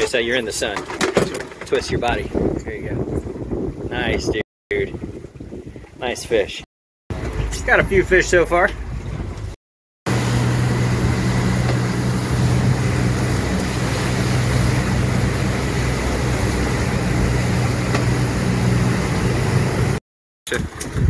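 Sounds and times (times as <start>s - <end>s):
rush of wind and water: 1.6s - 21.0s
outboard motor hum: 7.1s - 20.0s.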